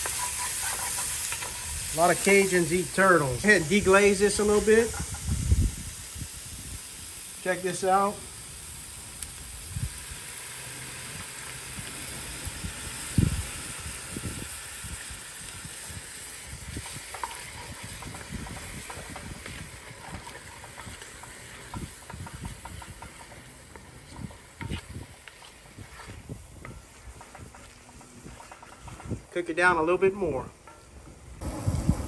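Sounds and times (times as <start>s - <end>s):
wooden spoon scraping pot: 0.0s - 3.0s, 16.8s - 26.1s
stock sizzling in hot pot: 0.0s - 29.6s.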